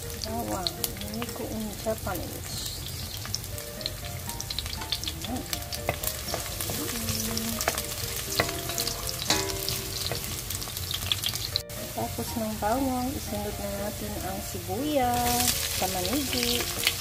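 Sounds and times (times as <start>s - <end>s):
garlic sizzling in hot oil: 0.0s - 17.0s
wooden spatula stirring in pan: 4.4s - 13.8s.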